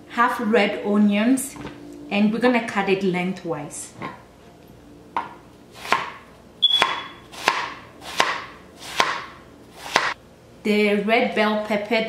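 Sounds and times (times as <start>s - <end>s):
knife slicing onion: 5.8s - 10.2s.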